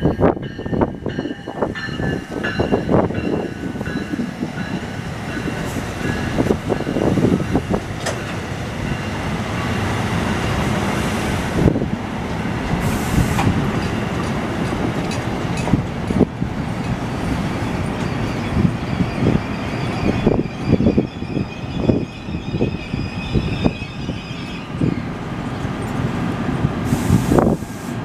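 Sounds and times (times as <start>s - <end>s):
train rail rumble: 0.0s - 28.0s
wheels clunking over track: 7.9s - 8.4s.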